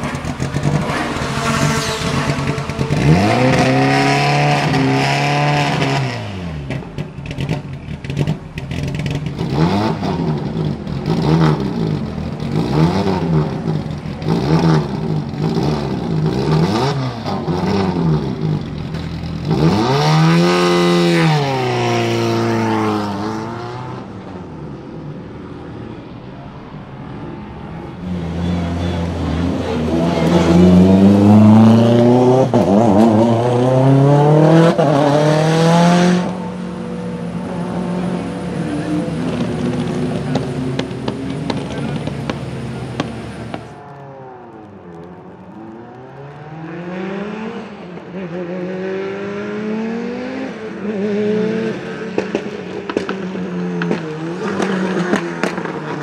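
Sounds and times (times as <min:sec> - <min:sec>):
race car engine revving: 0:00.0 - 0:25.1, 0:27.0 - 0:43.7
engine popping: 0:39.2 - 0:43.7.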